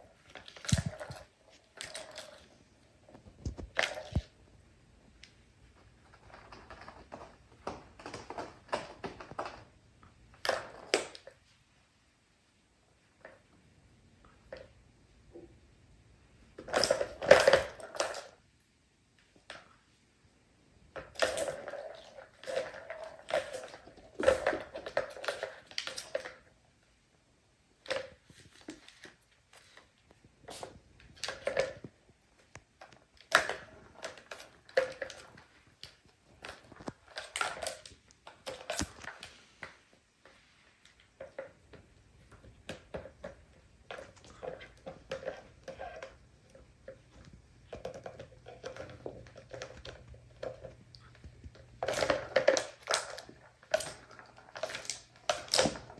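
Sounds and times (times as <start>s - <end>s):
plastic balls rattling in tracks: 41.1s - 55.9s.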